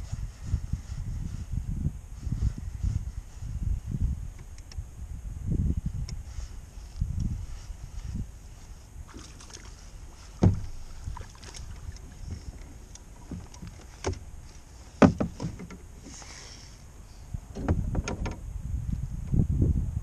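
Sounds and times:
fishing gear knocking on boat: 10.4s - 10.7s, 15.0s - 15.8s.

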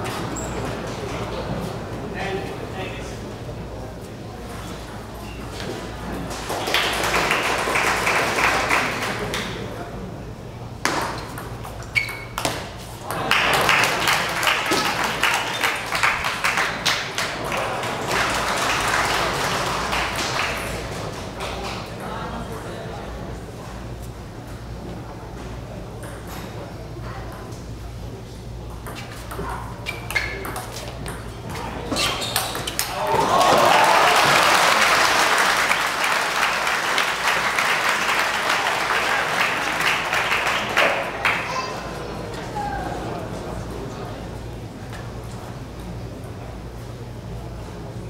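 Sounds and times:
spectators applauding: 6.3s - 9.6s, 13.2s - 21.0s, 32.8s - 41.7s.

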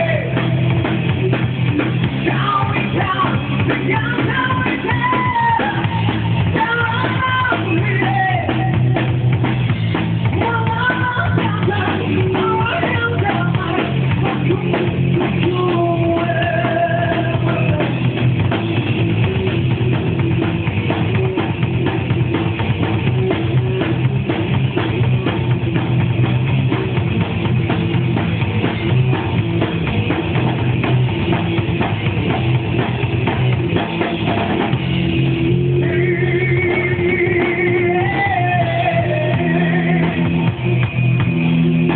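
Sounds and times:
rock band playing: 0.0s - 41.9s
person singing: 2.2s - 9.1s, 10.3s - 18.0s, 35.7s - 40.4s.

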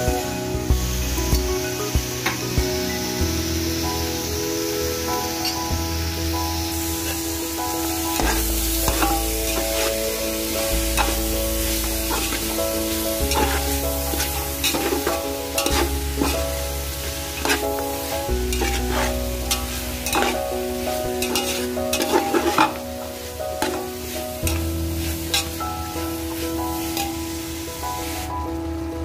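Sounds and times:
background music with sustained notes: 0.0s - 29.0s
vegetables sizzling: 0.0s - 29.0s
ladle scraping a steel pot: 18.6s - 20.4s, 21.2s - 22.8s.

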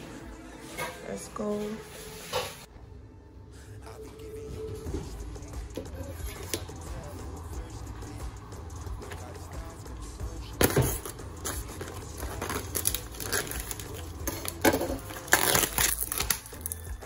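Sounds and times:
plastic film crinkling and tearing: 11.0s - 17.0s.

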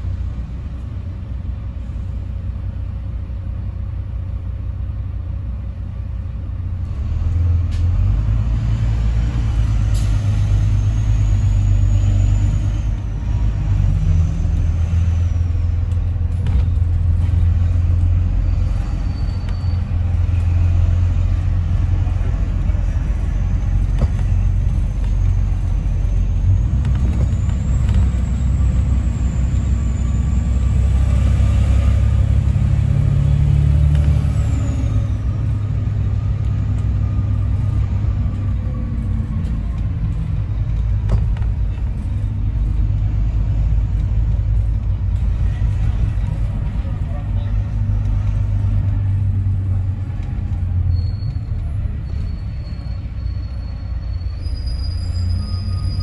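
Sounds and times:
bus engine rumble: 0.0s - 56.0s.

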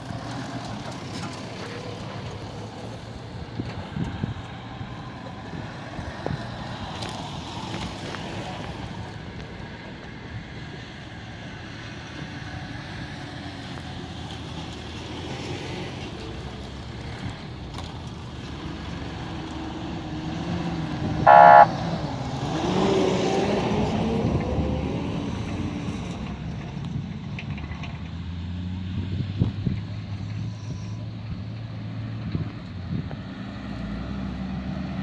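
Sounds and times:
off-road vehicles passing slowly: 0.0s - 35.0s
engine revving up: 18.8s - 25.8s
car horn toot: 21.2s - 21.8s.

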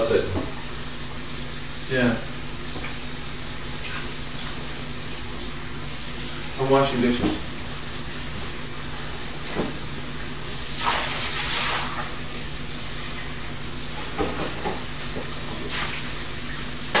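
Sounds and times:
water splashing in a sink: 9.7s - 13.4s.

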